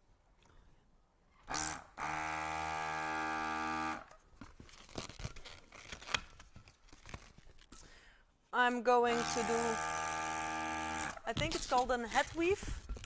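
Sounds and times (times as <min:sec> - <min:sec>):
balloon inflator motor hum: 0:01.4 - 0:04.2, 0:09.1 - 0:11.2.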